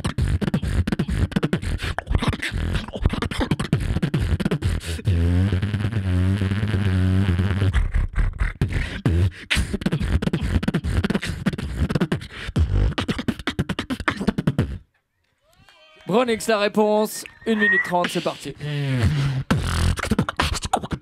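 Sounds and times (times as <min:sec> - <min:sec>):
beatboxed drum sounds: 0:00.0 - 0:14.9, 0:17.6 - 0:21.0
beatboxing bass tone: 0:00.0 - 0:14.9, 0:17.6 - 0:21.0.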